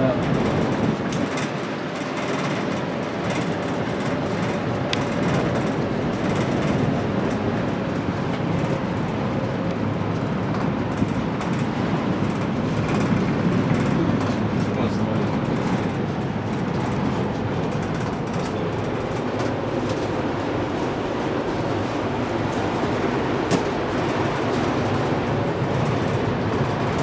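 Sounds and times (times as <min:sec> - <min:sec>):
cable car rumble and hiss: 0:00.0 - 0:27.0.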